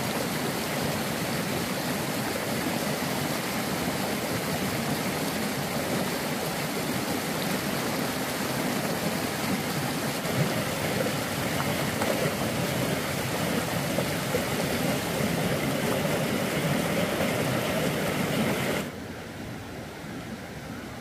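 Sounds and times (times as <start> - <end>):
flowing water rushing: 0.0 - 21.0.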